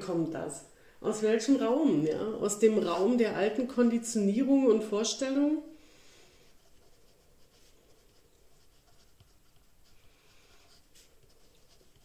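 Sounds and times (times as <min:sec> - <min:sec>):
pen scratching on paper: 0:06.4 - 0:12.0.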